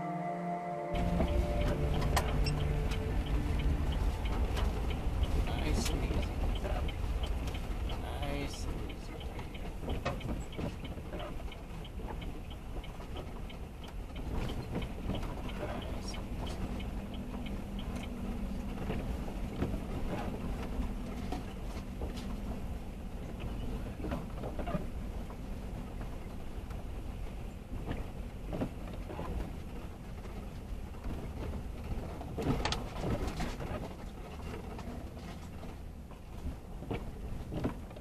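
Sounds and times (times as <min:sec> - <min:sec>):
engine hum: 0:00.0 - 0:38.0
vehicle driving on gravel: 0:01.0 - 0:38.0.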